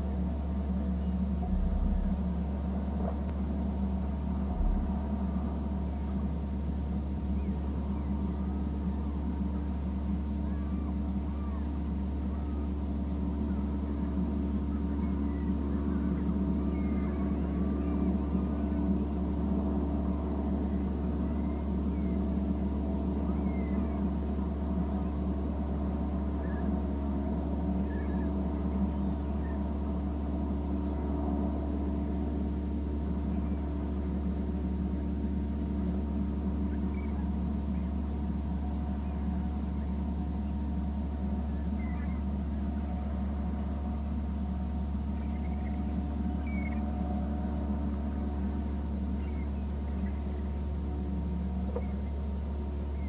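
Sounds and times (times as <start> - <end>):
steady low hum: 0.0 - 53.0
bird calls: 10.3 - 12.7, 14.6 - 18.9, 20.4 - 24.2, 26.3 - 26.8, 27.7 - 29.7, 36.5 - 38.1, 41.4 - 43.1, 45.0 - 47.0, 49.0 - 50.5, 51.6 - 52.2.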